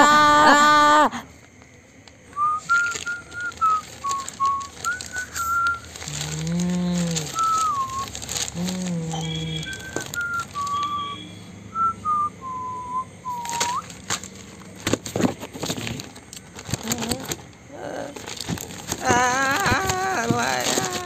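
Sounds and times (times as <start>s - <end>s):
newspaper pages rustling: 2.0s - 11.1s, 13.3s - 21.0s
person whistling a tune: 2.4s - 13.9s.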